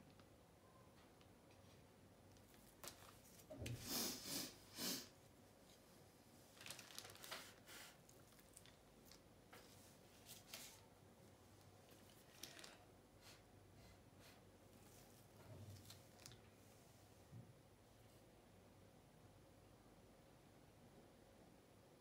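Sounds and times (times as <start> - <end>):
rustling crinkling handling noises: 1.6 - 3.8, 5.6 - 13.4, 14.7 - 16.8.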